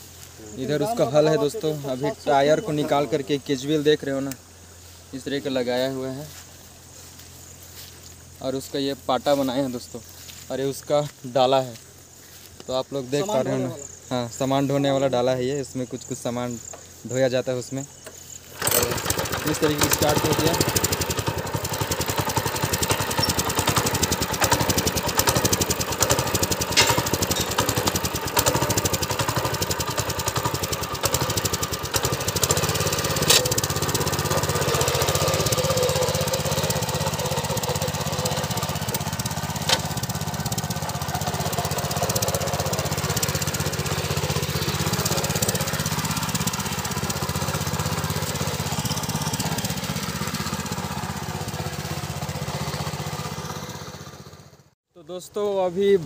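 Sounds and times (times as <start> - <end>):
power tiller engine running: 18.0 - 54.8
sharp clicks: 26.1 - 28.7.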